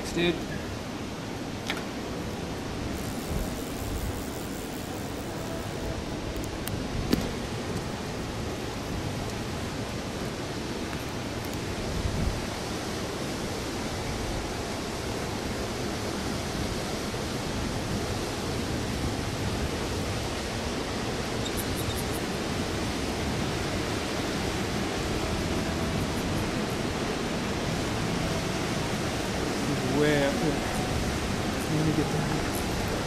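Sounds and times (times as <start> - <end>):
waterfall rushing: 22.1 - 33.0.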